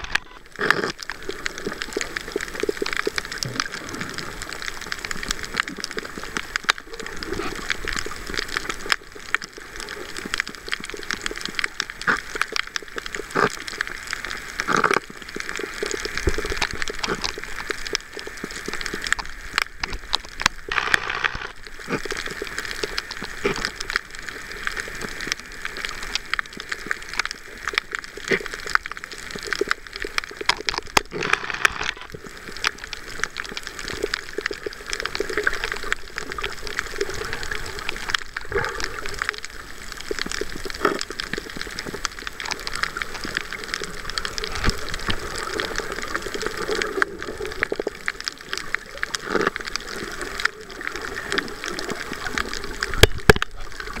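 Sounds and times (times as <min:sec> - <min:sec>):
crackling clicks and pops: 0:00.0 - 0:54.0
fish crunching coral: 0:00.0 - 0:54.0
watery hiss: 0:01.1 - 0:08.6
sharp cracks: 0:19.6 - 0:22.2.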